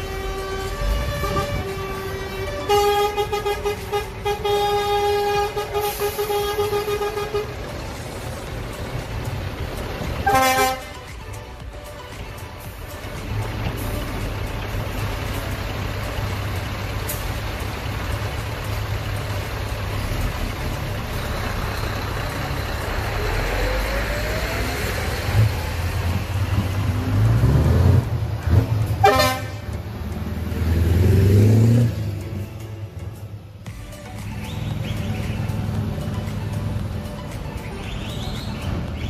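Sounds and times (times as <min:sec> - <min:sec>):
truck horn blast: 0:00.0 - 0:08.0, 0:10.1 - 0:11.1, 0:27.6 - 0:30.0
diesel trucks rumbling past: 0:00.0 - 0:39.0.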